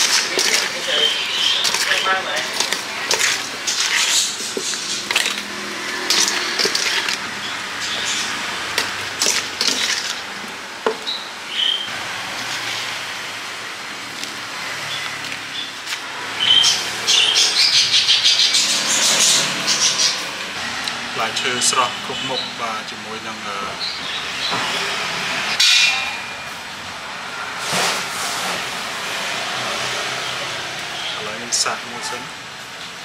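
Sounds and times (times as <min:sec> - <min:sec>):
spoon scraping a steel bowl: 0:00.0 - 0:10.2.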